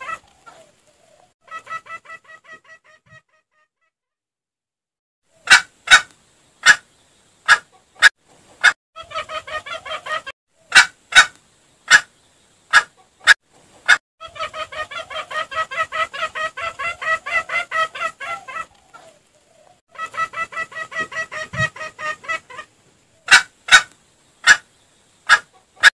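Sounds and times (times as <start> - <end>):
fast clucking lure call: 1.4 - 3.4, 5.4 - 6.8, 7.5 - 12.1, 12.7 - 19.1, 19.9 - 24.7, 25.3 - 25.9.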